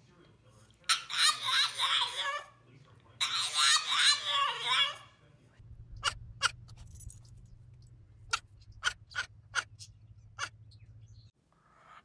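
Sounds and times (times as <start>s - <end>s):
steady low hum: 5.6s - 11.3s
sharp animal squeaks: 8.3s - 10.8s.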